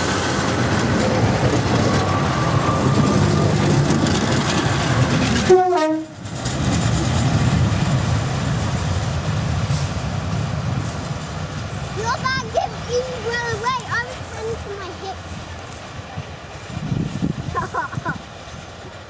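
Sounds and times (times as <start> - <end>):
diesel train running past: 0.0 - 19.0
train horn: 5.4 - 6.2.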